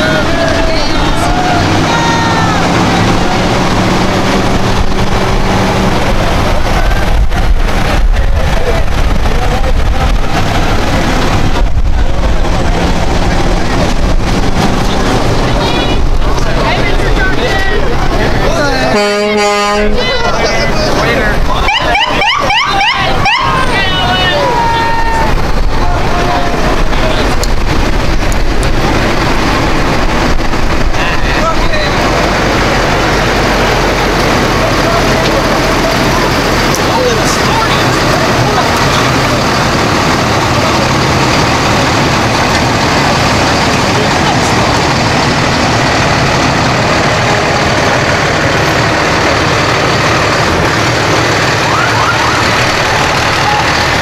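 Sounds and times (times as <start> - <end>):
faint voices of passers-by: 0.0 - 54.0
fire truck diesel engines running: 0.0 - 54.0
wind buffeting microphone: 2.6 - 18.6, 25.0 - 34.8.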